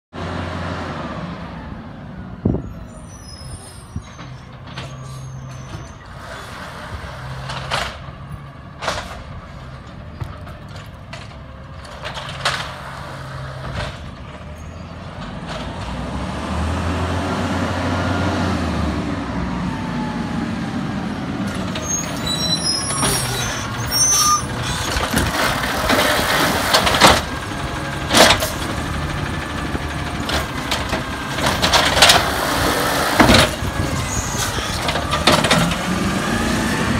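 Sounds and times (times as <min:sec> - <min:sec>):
trash cart clanking and banging: 0:03.4 - 0:16.6, 0:21.4 - 0:36.9
garbage truck engine running: 0:18.9 - 0:36.9.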